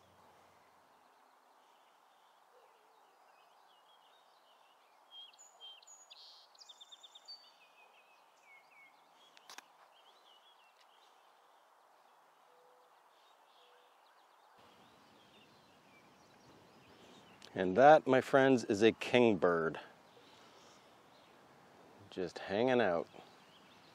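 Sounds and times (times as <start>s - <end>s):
faint outdoor hiss: 0.0s - 23.9s
sparrow singing a trill: 1.0s - 11.6s, 12.5s - 17.8s.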